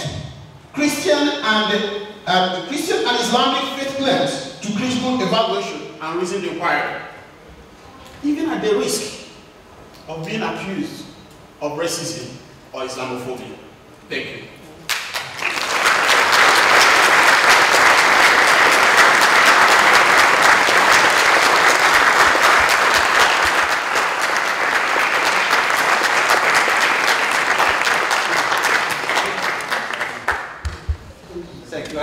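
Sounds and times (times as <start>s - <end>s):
audience applauding: 14.9s - 30.9s.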